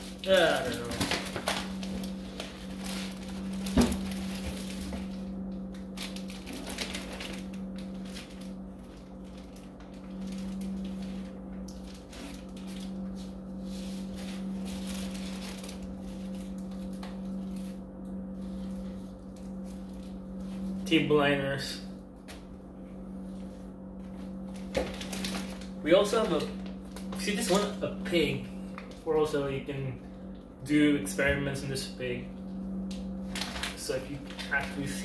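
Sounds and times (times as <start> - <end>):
plastic bags crinkling: 0.0 - 13.2, 14.0 - 17.7, 24.5 - 29.1, 33.2 - 35.0
steady low hum: 0.0 - 35.0.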